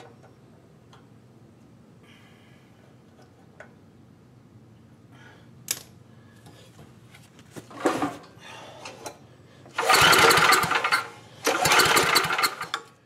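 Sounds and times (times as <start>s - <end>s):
small handling clicks: 5.7s - 6.0s
recoil starter pull cranking engine: 9.8s - 12.9s.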